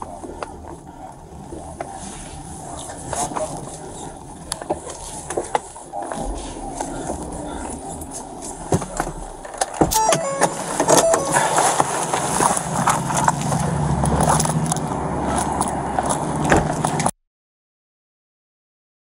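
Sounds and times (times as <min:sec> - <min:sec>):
steady low hum: 0:00.0 - 0:09.6
short electronic tones: 0:09.9 - 0:11.9
clicks and jangling: 0:14.0 - 0:17.1.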